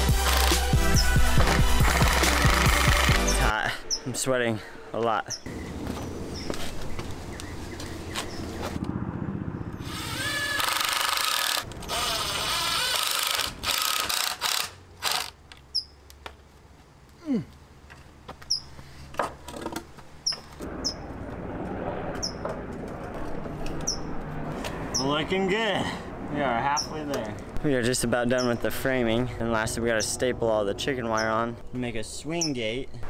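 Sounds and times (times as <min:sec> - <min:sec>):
cordless drill driving screws: 0:09.9 - 0:15.4.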